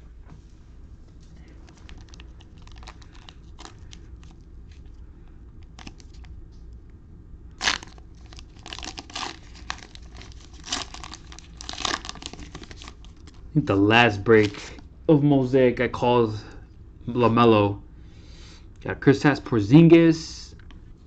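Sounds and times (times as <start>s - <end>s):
cellophane wrappers tearing: 1.4s - 4.8s, 5.6s - 6.3s, 7.6s - 13.4s, 14.3s - 14.8s
cellophane crinkling: 1.4s - 5.0s, 5.6s - 6.3s, 7.6s - 14.8s.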